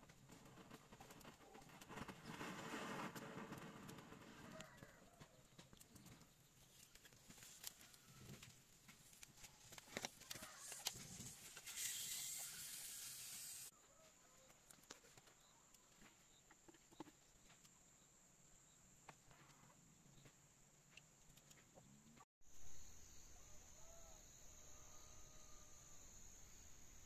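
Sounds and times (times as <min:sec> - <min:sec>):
wood fire crackling: 0:00.0 - 0:13.7
steady hiss: 0:10.5 - 0:13.7
high insect whine: 0:22.5 - 0:27.0.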